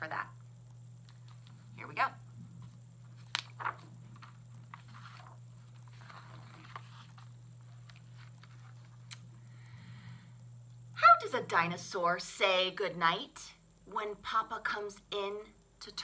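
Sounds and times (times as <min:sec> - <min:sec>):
paper pages rustling: 0:02.6 - 0:09.1.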